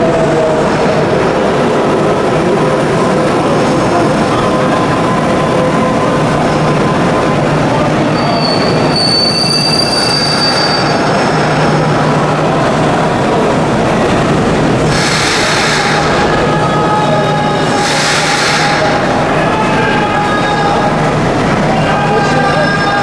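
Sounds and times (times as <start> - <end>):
electric train rumbling: 0.0 - 23.0
high-pitched wheel squeal: 3.0 - 11.8, 21.8 - 23.0.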